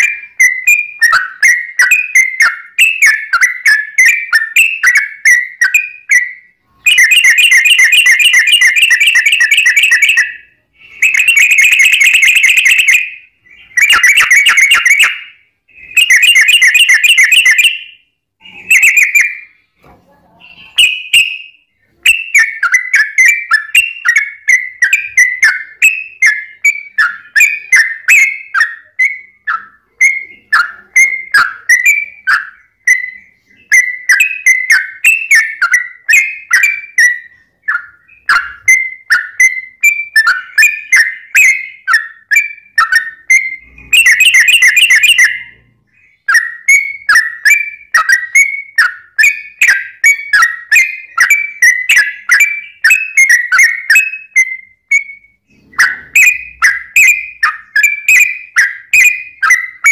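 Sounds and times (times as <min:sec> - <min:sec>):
bird trilling song: 0:00.0 - 0:59.9.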